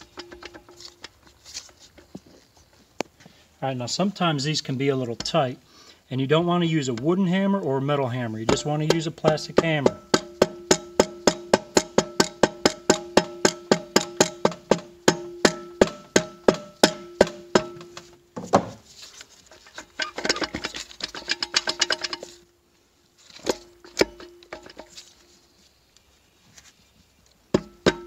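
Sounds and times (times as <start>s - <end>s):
metallic rattling: 0.0s - 2.8s, 8.5s - 18.1s, 19.4s - 22.5s, 23.4s - 25.2s.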